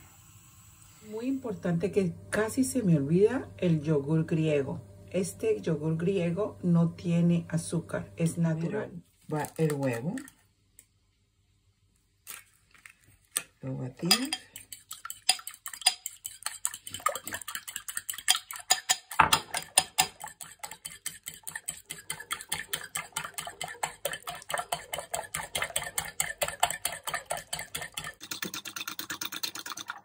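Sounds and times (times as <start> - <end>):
fork beating egg in bowl: 14.0 - 30.0.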